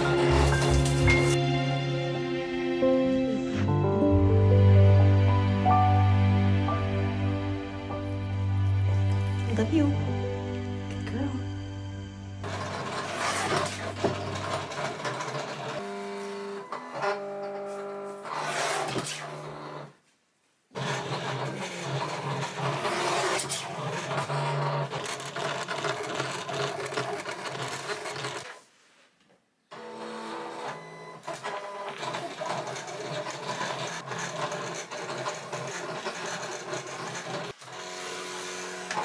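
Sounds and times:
paper scraping sliding and clicking: 0.0s - 1.4s, 12.4s - 16.4s, 17.6s - 19.4s.

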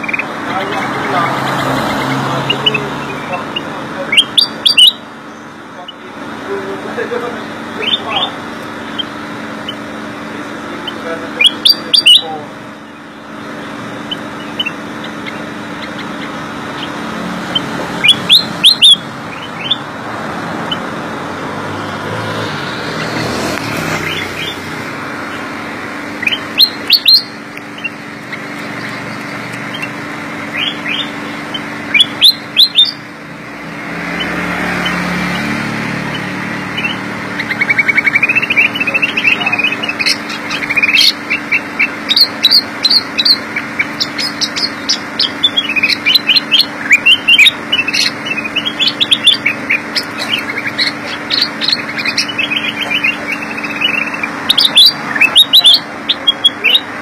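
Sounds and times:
steady background hum: 0.0s - 57.0s
bird whistling sharp rising notes: 14.1s - 19.9s, 26.2s - 33.0s.

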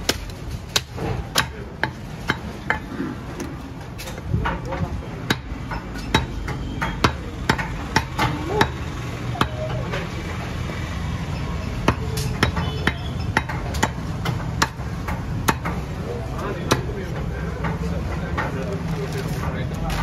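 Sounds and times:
cleaver chopping on wooden block: 0.0s - 3.6s, 5.2s - 8.8s, 11.8s - 15.8s.

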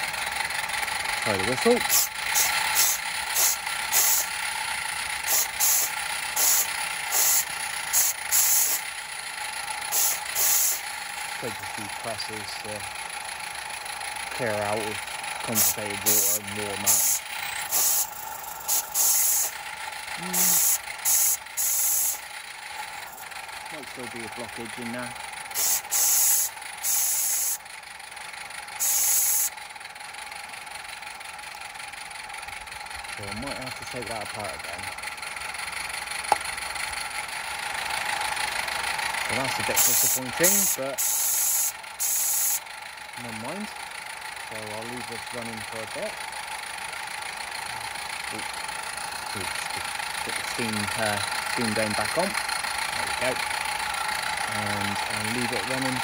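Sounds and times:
small steam engine running: 0.0s - 56.0s
steam whistle hissing blasts: 1.9s - 4.3s, 5.3s - 7.4s, 8.0s - 8.8s, 25.6s - 27.6s, 28.8s - 29.5s, 41.0s - 42.6s.

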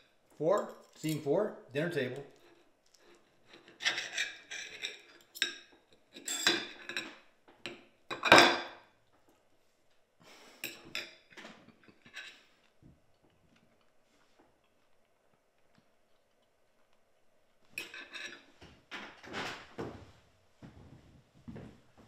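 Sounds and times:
cutlery scraping on plate: 2.3s - 7.2s, 10.6s - 12.6s, 17.8s - 18.5s.

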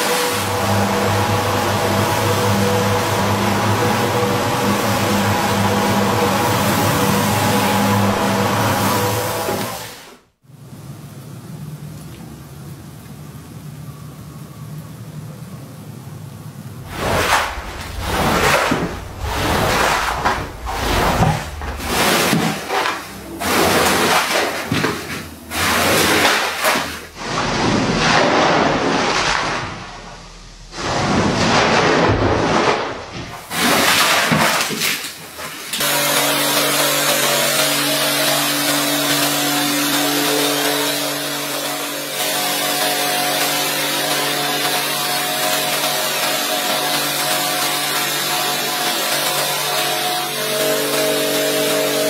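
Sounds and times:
motor running: 0.0s - 10.1s
water rushing and hissing: 0.0s - 10.2s, 16.6s - 36.0s.

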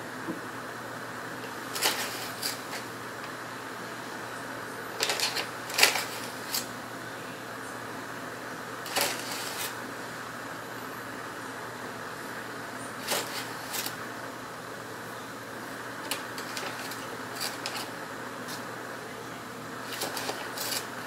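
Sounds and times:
spatula scraping: 1.7s - 2.9s, 5.0s - 6.7s, 8.9s - 9.8s, 13.0s - 14.0s, 16.1s - 18.0s, 19.8s - 21.0s
plastic bag crinkling: 5.0s - 6.6s, 8.9s - 9.8s, 16.1s - 17.9s, 19.8s - 20.9s.

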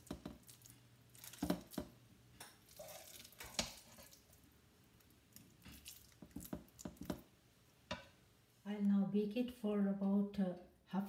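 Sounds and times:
spatula tapping and clicking: 0.0s - 0.4s, 6.2s - 7.3s
squishy plops of mixture: 0.0s - 7.3s.

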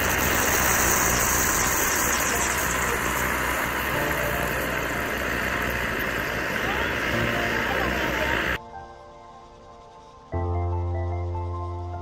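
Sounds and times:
camp stove burner hissing: 0.0s - 8.6s
coffee brewing in moka pot: 0.0s - 8.6s.

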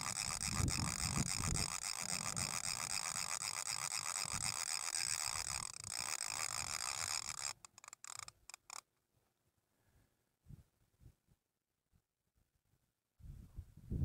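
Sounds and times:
wind buffeting microphone: 0.0s - 2.8s.

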